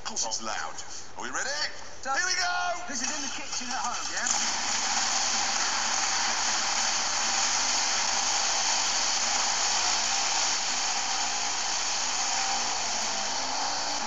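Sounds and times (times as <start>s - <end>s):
blender whirring loudly: 4.3s - 14.0s.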